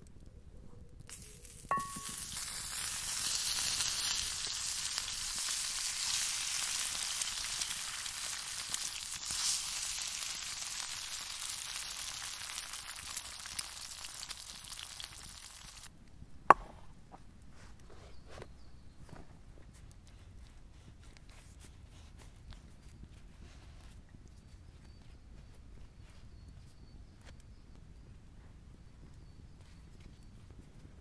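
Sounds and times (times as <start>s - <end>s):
sharp metallic clink: 1.7s - 2.4s.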